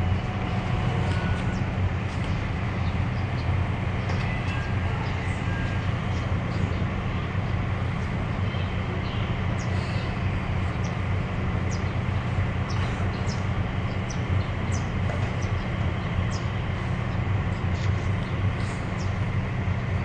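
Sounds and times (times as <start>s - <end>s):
diesel railcar engine drone: 0.0s - 20.0s.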